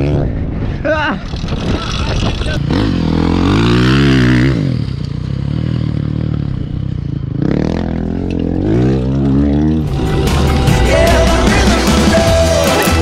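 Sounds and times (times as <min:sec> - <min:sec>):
small motorcycle engine revving: 0:01.2 - 0:11.0.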